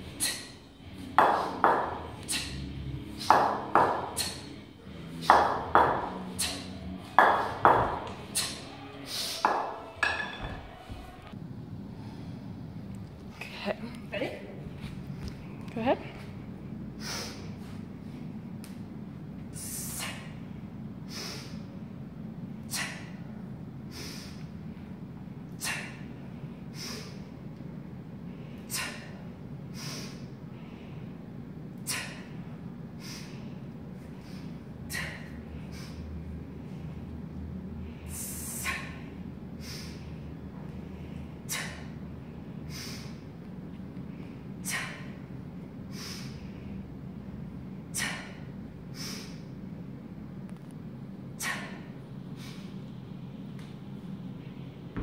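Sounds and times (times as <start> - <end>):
woman's sharp hissing breaths: 0.0 - 0.7, 1.4 - 3.4, 4.0 - 5.4, 6.2 - 6.8, 8.2 - 9.5, 17.0 - 17.8, 19.6 - 20.4, 21.0 - 21.7, 22.6 - 23.3, 23.9 - 24.6, 25.5 - 27.3, 28.4 - 31.1, 31.8 - 36.1, 37.9 - 40.2, 40.9 - 42.0, 42.7 - 43.3, 44.6 - 45.2, 45.8 - 46.8, 47.8 - 49.5, 51.4 - 52.8
low hum: 0.0 - 55.0.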